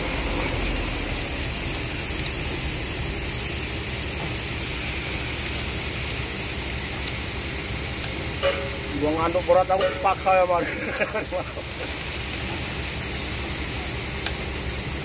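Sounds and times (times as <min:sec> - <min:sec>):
kernels pouring into truck bed: 0:08.2 - 0:13.4.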